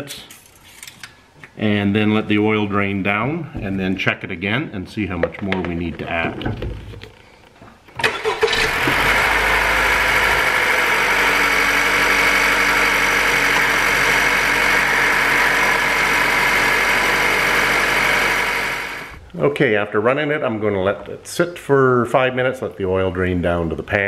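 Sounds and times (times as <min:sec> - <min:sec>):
car engine starting and idling: 0:08.0 - 0:19.2.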